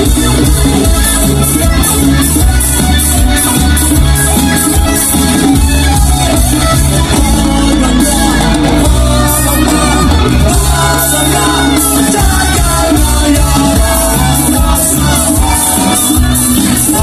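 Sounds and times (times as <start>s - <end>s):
reggae band playing: 0.0s - 17.0s
person singing: 6.8s - 17.0s.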